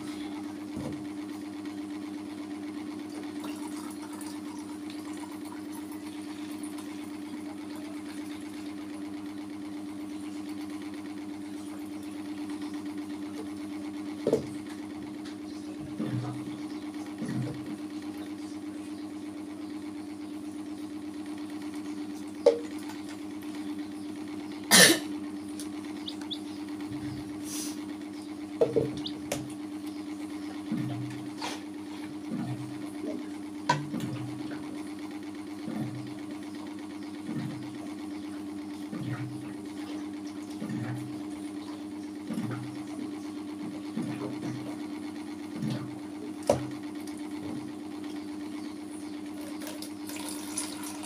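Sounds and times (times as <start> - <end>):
low machine hum: 0.0 - 51.0.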